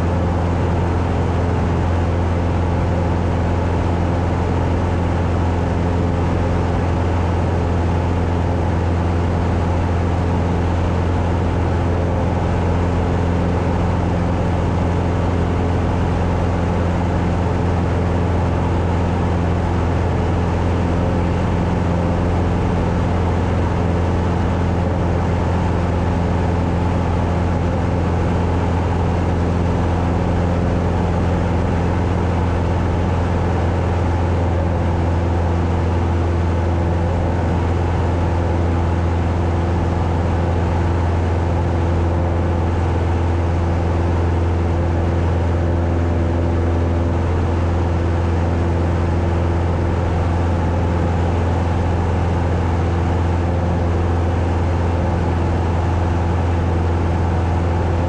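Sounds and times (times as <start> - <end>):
propeller plane engine drone: 0.0 - 58.0.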